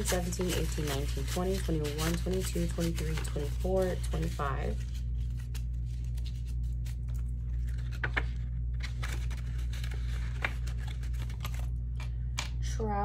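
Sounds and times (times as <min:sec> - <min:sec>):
paper bills rustling: 0:00.0 - 0:12.2
steady low hum: 0:00.0 - 0:13.0.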